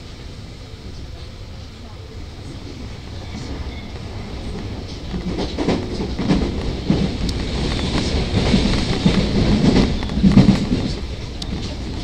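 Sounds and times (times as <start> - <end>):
train rumbling with wheel clatter: 0.0 - 12.0.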